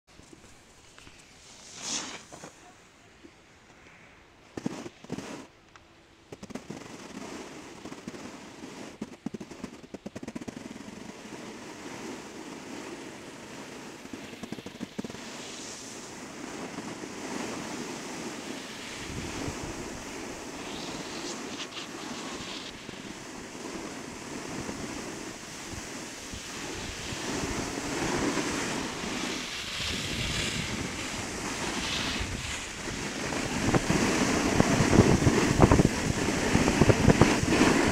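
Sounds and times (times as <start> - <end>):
sliding over packed snow: 0.2 - 2.6, 6.4 - 37.9
wind on microphone: 11.8 - 37.9.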